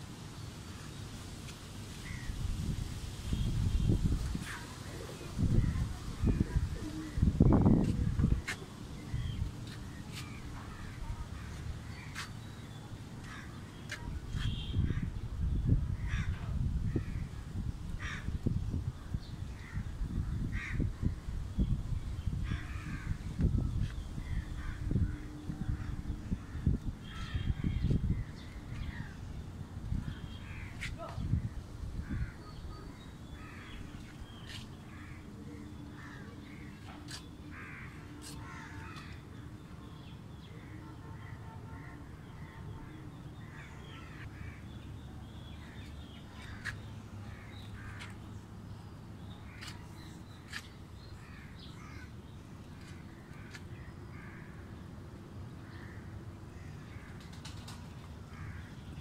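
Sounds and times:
crows cawing: 16.0s - 16.4s, 18.0s - 18.3s, 20.5s - 20.9s, 37.5s - 39.2s, 51.2s - 52.2s, 58.3s - 58.8s.

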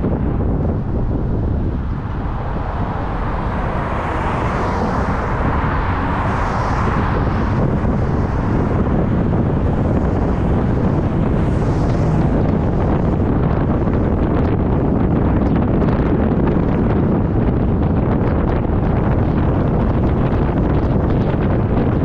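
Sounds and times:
car passing: 0.0s - 22.0s
traffic noise: 0.0s - 22.0s
wind rumbling on microphone: 0.0s - 22.0s.

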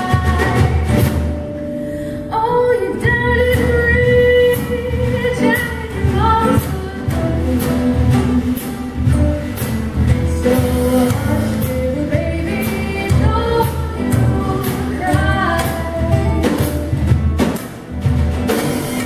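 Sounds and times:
drum kit beat: 0.0s - 1.7s, 3.0s - 19.0s
plucked upright bass: 0.0s - 2.0s, 2.8s - 19.0s
acoustic guitar: 0.0s - 19.0s
person singing: 10.2s - 16.9s.

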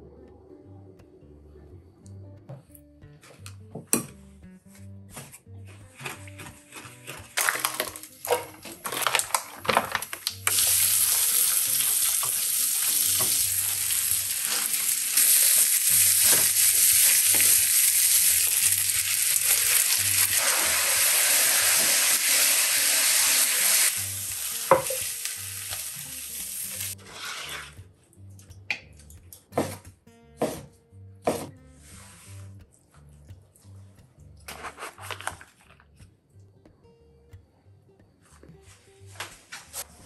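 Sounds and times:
noodles sizzling in a frying pan: 10.4s - 27.0s.

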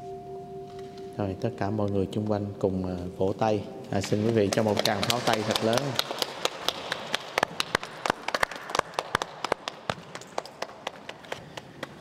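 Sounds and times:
small crowd applauding: 4.2s - 12.0s.

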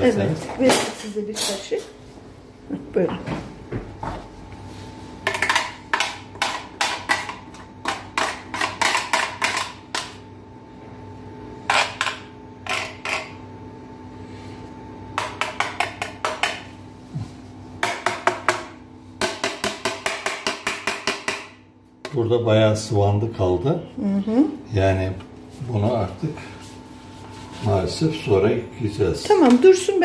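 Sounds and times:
grater knocking against porcelain bowl: 17.8s - 21.5s.

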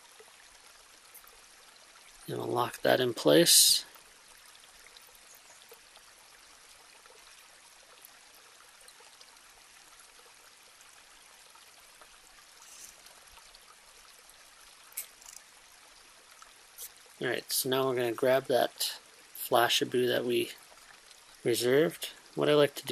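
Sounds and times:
faint steady hiss: 0.0s - 22.9s
soft rustle: 12.5s - 13.2s.

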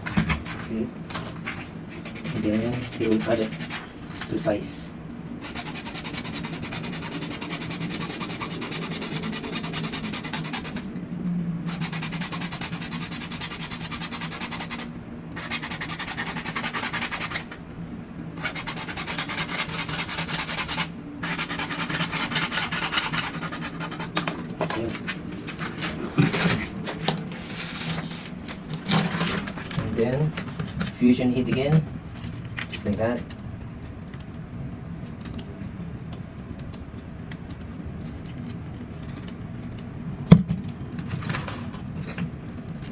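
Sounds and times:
hacksaw sawing plastic pipe: 5.4s - 10.8s, 11.7s - 17.5s, 18.4s - 24.8s.

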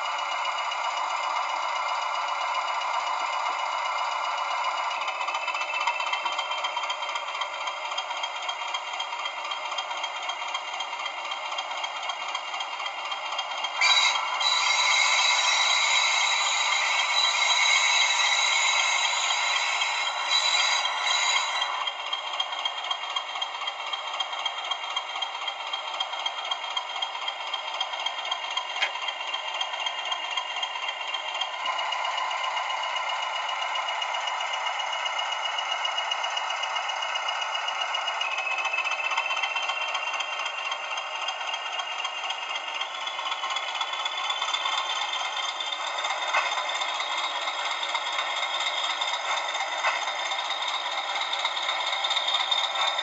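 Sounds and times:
tinny model diesel engine: 0.0s - 53.0s.

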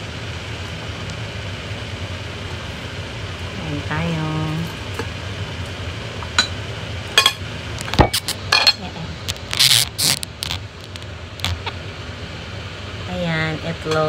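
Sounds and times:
plate scraping: 7.8s - 8.4s.

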